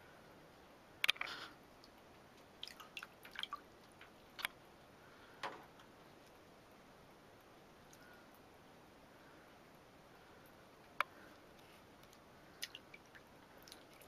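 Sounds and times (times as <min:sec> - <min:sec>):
water splashing and dripping: 0:01.0 - 0:04.6, 0:12.0 - 0:14.0.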